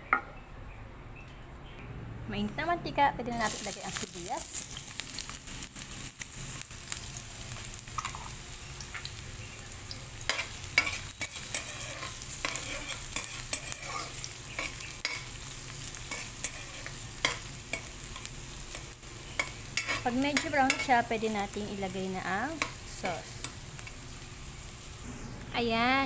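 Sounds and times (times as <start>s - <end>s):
onions sizzling in hot oil: 3.3s - 26.0s
metal spatula scraping a wok: 10.3s - 15.4s, 16.0s - 17.9s, 19.4s - 21.0s.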